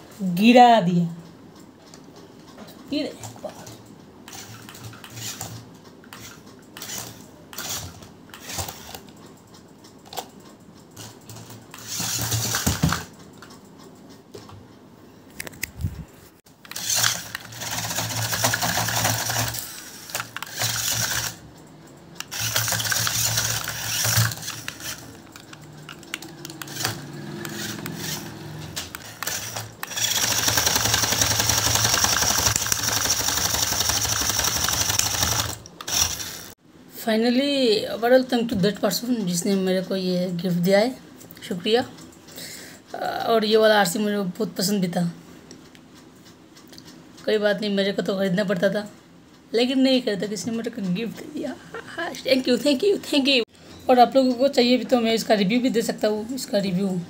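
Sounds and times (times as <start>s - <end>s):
toy car motor whirring: 4.3s - 9.0s, 11.7s - 13.1s, 16.6s - 21.4s, 22.2s - 36.6s.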